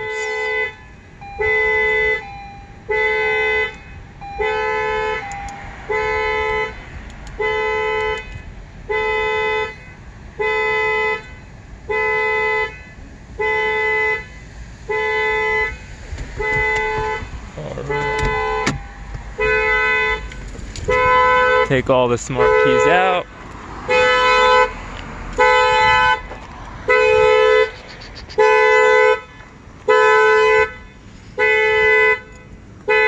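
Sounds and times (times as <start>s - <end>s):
car warning beeper: 0.0s - 6.8s, 15.0s - 23.3s.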